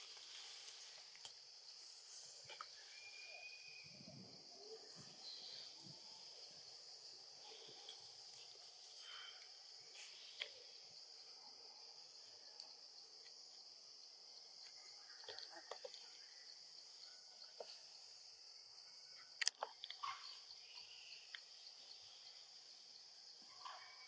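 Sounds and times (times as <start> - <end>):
high-pitched insect drone: 1.6 - 10.8.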